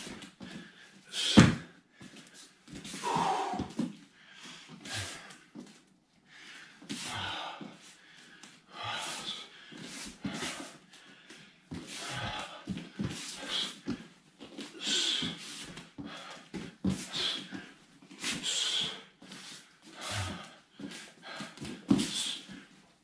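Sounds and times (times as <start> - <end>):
sharp breaths: 0.4 - 5.4, 6.4 - 22.6
bare feet stamping on mats: 1.4 - 1.7.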